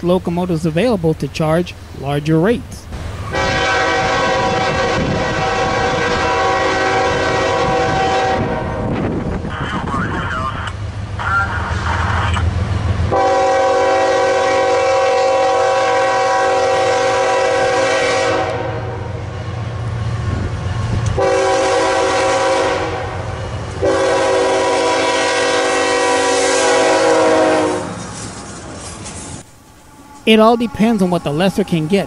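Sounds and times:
train rumbling: 0:00.0 - 0:32.0
locomotive air horn blasts: 0:03.2 - 0:09.0, 0:13.1 - 0:19.2, 0:21.1 - 0:28.1.

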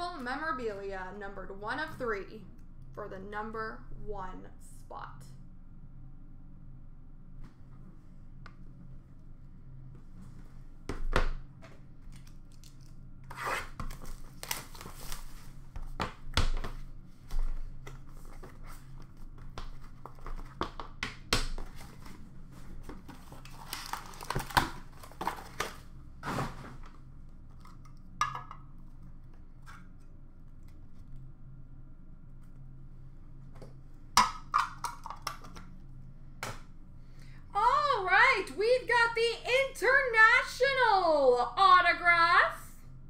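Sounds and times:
wrappers tearing and crinkling: 0:12.2 - 0:15.6, 0:23.2 - 0:26.5
cardboard scraping: 0:24.9 - 0:26.9.

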